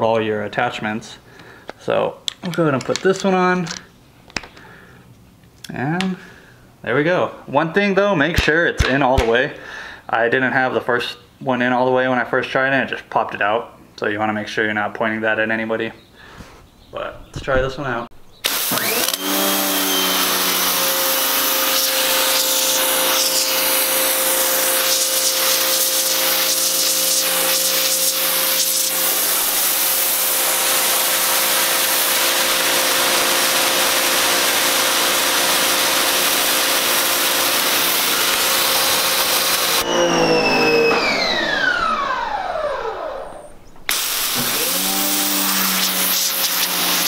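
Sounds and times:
pressure washer motor humming: 18.4s - 47.0s
water jet hissing on concrete: 21.2s - 39.8s, 43.9s - 47.0s.

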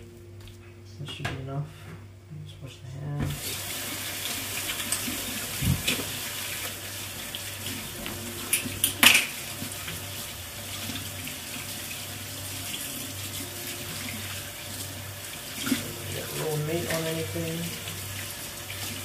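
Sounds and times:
tap running into sink: 4.6s - 6.8s.

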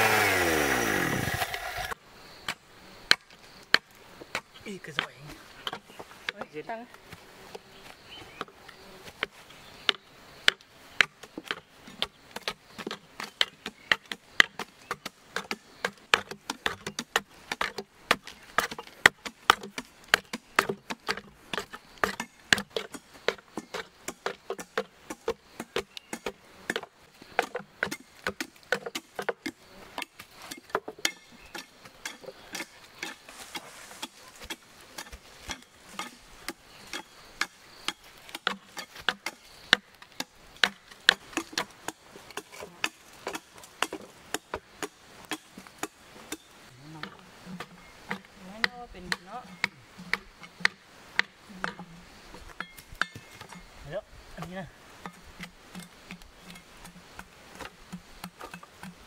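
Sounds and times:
hand tool scraping wood: 0.0s - 59.0s
wooden knocks and chipping: 1.4s - 7.6s, 8.3s - 53.6s, 54.4s - 59.0s.

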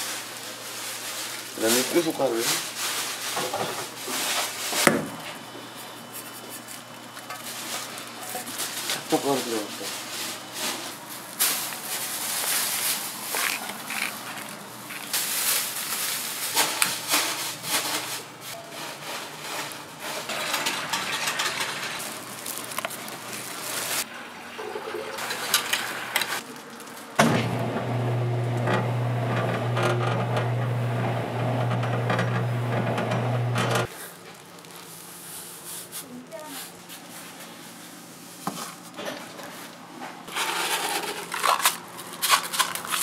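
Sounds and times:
electric motor hum: 27.2s - 33.9s.

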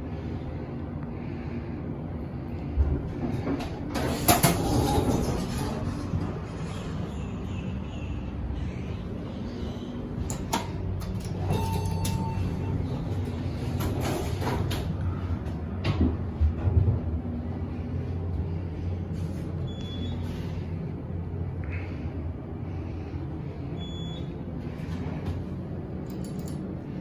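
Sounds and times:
steady low hum: 0.0s - 27.0s
elevator doors sliding: 2.7s - 17.9s.

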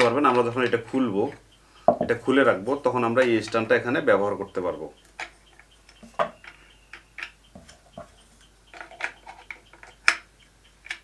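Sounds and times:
plastic clicks and taps: 5.1s - 11.0s.

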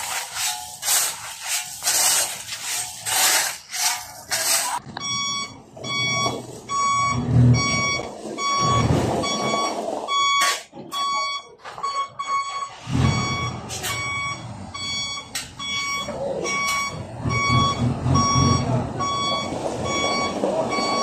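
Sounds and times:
shovels scraping through gravel: 0.0s - 4.8s
truck reversing alarm beeping: 0.0s - 21.0s
truck engine running: 11.5s - 21.0s.

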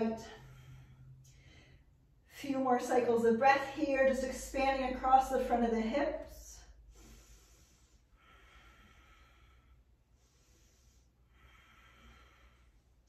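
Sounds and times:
low steady hum: 0.0s - 13.0s
slow breathing: 0.2s - 2.4s, 6.6s - 13.0s.

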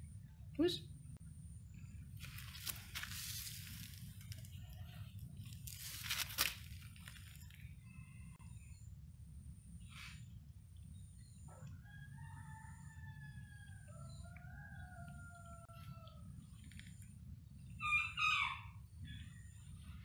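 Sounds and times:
rooster crowing: 11.8s - 16.3s.

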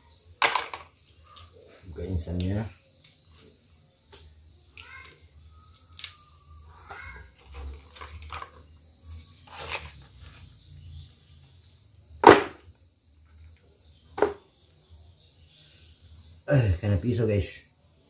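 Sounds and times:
sharp knock: 12.2s - 12.6s.

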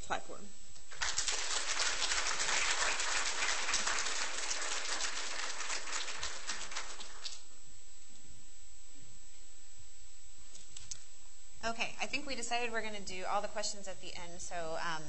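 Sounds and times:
audience applauding: 0.9s - 7.5s.

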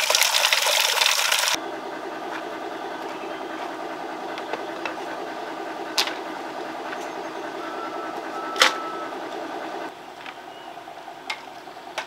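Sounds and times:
small motor humming: 0.6s - 12.0s.

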